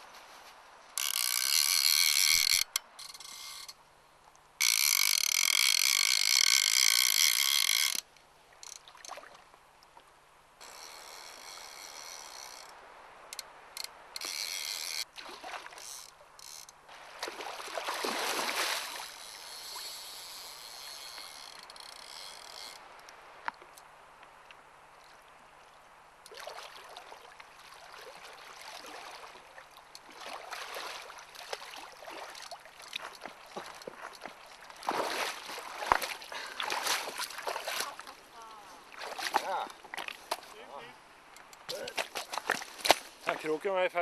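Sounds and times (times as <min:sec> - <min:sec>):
fly reel drag buzzing: 0:01.0 - 0:03.8, 0:04.6 - 0:08.8, 0:10.6 - 0:12.8, 0:13.4 - 0:15.1, 0:15.8 - 0:16.8, 0:18.0 - 0:23.1.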